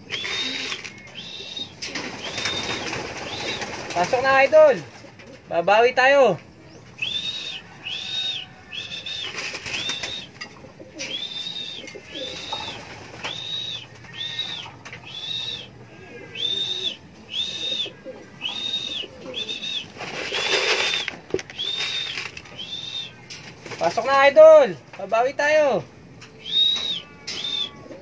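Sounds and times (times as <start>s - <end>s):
high squeaky whistled call: 0.1s - 2.8s, 11.0s - 23.3s, 26.4s - 28.0s
rustling: 19.4s - 24.1s.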